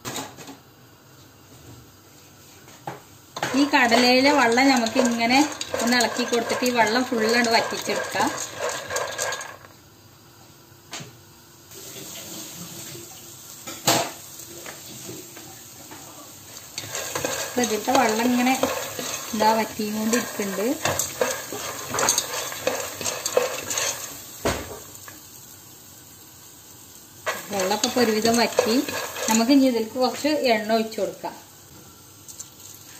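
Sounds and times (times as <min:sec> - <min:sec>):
faint sizzle: 0:00.6 - 0:32.9
peas rattling and scraping in pan: 0:03.4 - 0:09.7, 0:16.6 - 0:25.1, 0:27.2 - 0:30.2.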